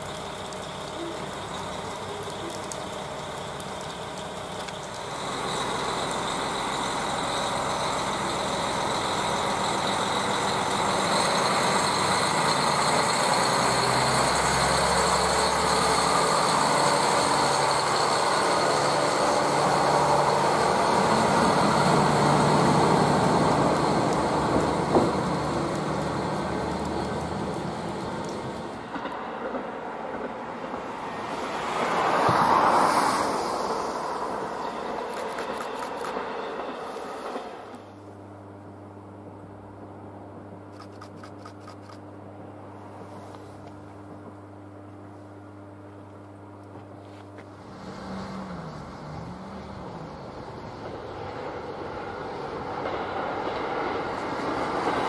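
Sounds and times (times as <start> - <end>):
diesel railcar engine: 0.0 - 55.0.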